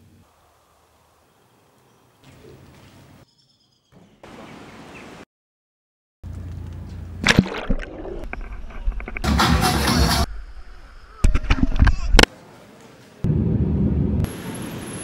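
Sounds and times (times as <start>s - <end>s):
faint outdoor ambience: 0.0s - 5.2s, 10.2s - 15.0s
water sloshing and splashing: 7.2s - 9.2s.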